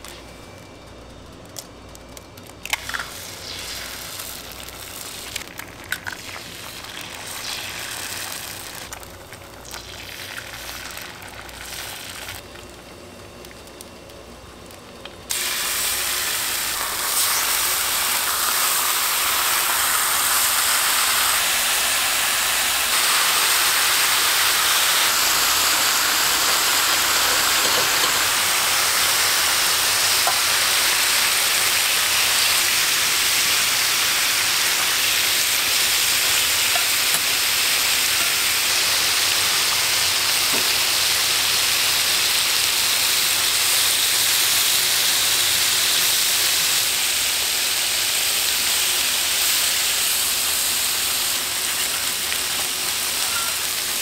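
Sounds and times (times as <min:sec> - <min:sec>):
bacon sizzling loudly: 0:00.0 - 0:54.0
eggs frying with light crackle: 0:00.0 - 0:54.0.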